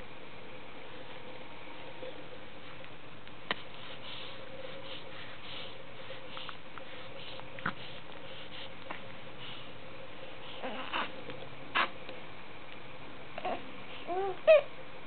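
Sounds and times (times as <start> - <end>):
faint hum: 0.0 - 15.0
baby breathing and sniffing: 3.5 - 9.8.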